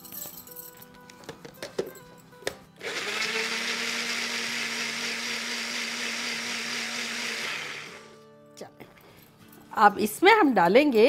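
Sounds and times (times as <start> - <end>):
blender motor whirring: 2.8 - 8.2.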